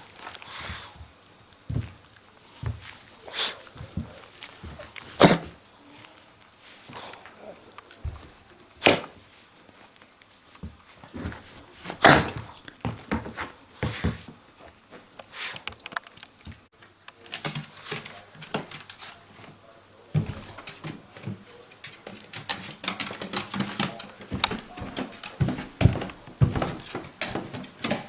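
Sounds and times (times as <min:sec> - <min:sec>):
rustling: 0:00.0 - 0:28.0
dog claws tapping on wooden stairs: 0:20.2 - 0:28.0.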